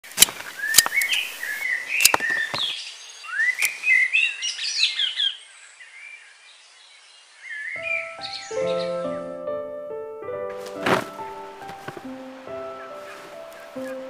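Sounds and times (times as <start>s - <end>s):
pruning shears snipping stems: 0.0s - 2.7s
small birds chirping: 0.0s - 9.2s, 10.7s - 14.0s.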